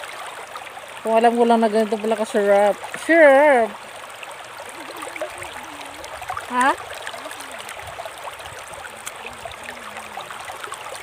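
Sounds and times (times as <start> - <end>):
river water running over rocks: 0.0 - 11.0
person's rising vocal sound: 4.7 - 7.8
person humming softly: 4.9 - 6.2, 7.1 - 7.8, 9.1 - 10.6.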